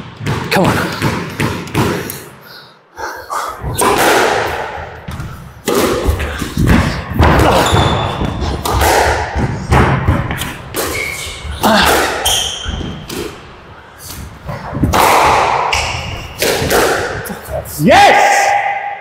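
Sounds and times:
squash ball hitting walls: 0:00.0 - 0:02.3, 0:03.6 - 0:13.4, 0:14.5 - 0:17.2
rackets striking ball: 0:00.0 - 0:02.4, 0:03.7 - 0:17.3.

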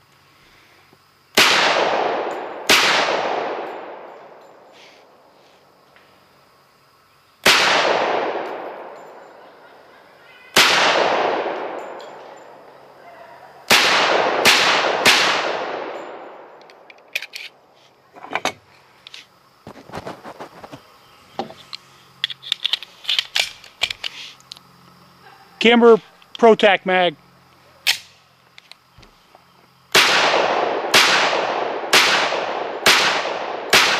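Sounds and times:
pistol shots with echo: 0:01.4 - 0:04.4, 0:07.4 - 0:09.6, 0:10.6 - 0:12.1, 0:13.7 - 0:16.5, 0:29.9 - 0:33.9
magazine metal clicks: 0:16.0 - 0:17.6, 0:21.7 - 0:24.7, 0:27.8 - 0:28.8.

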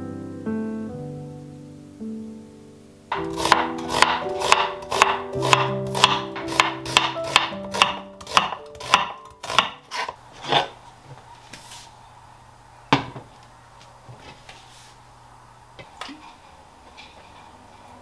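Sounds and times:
knife chopping on wooden board: 0:03.1 - 0:10.6.

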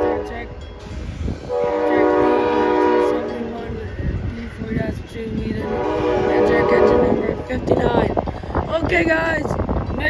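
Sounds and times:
locomotive horn blast: 0:00.0 - 0:00.6, 0:01.4 - 0:03.5, 0:05.6 - 0:07.5
train cars rumbling on rails: 0:00.0 - 0:10.0.

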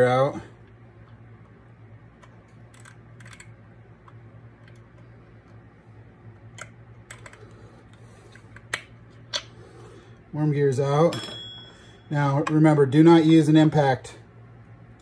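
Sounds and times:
steady low hum: 0:00.0 - 0:15.0
small parts clicking and tapping: 0:02.2 - 0:05.6, 0:06.4 - 0:09.5.

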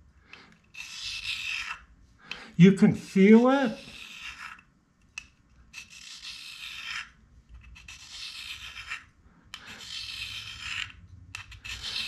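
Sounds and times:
tool bit scraping on a hone: 0:02.6 - 0:12.0.

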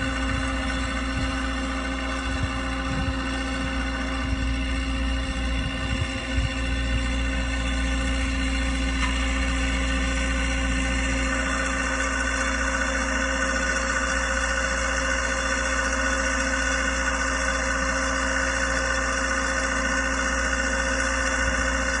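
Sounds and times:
winch drive humming and whining: 0:00.0 - 0:22.0.

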